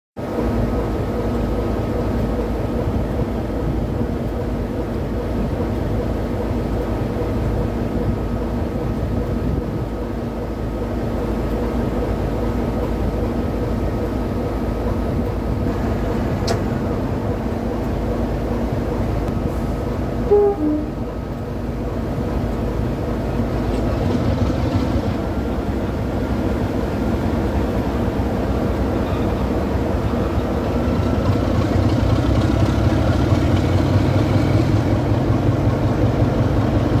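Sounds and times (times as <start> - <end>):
diesel locomotive engine idling: 0.2 - 37.0
click: 16.4 - 16.7.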